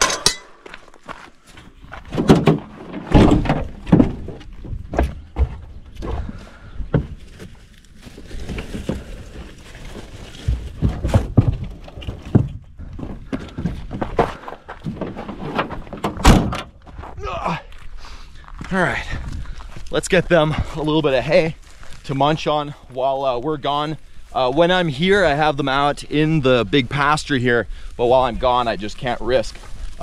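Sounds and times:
metal gate thunks and knocks: 0.0 - 0.6, 16.0 - 16.7
hay bale rustling: 7.1 - 11.2.

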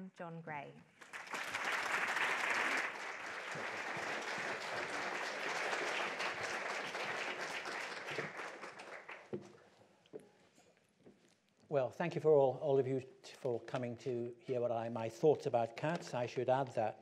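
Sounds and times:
audience applauding: 1.0 - 9.4.

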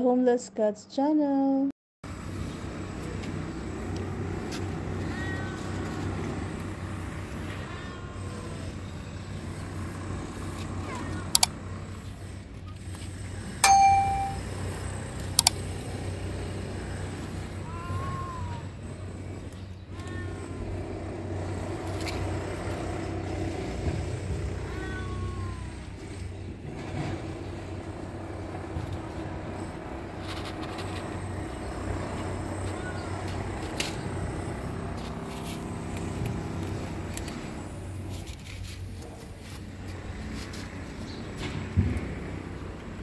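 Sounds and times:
distant street traffic hum: 2.0 - 43.0
short clicks: 11.3 - 11.6
sharp metallic ding: 13.6 - 14.6.

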